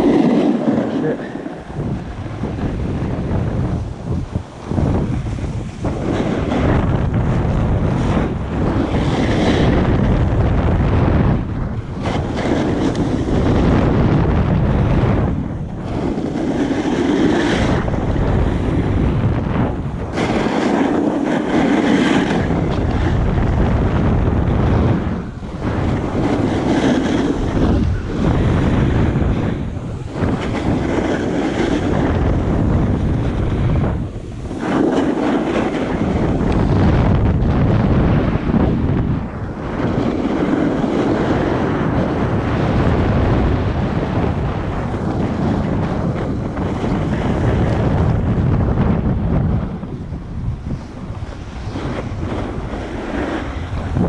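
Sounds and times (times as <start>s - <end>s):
ski edges scraping snow: 0.0s - 2.5s, 12.0s - 13.8s, 15.8s - 18.8s, 20.1s - 23.2s, 25.6s - 33.8s, 34.4s - 36.8s, 50.7s - 54.0s
wind buffeting microphone: 0.0s - 54.0s.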